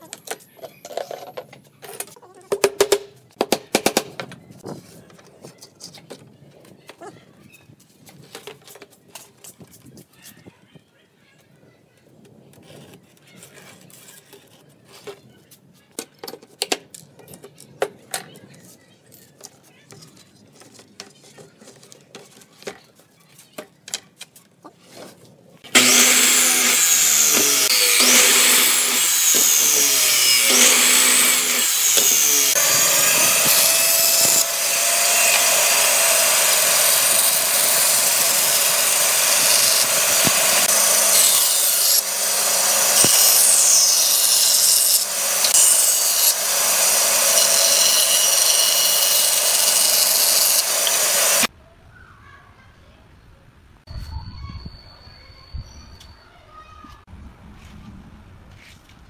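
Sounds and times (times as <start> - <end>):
band saw cutting wood: 25.7 - 51.5
band saw motor hum: 25.7 - 51.5.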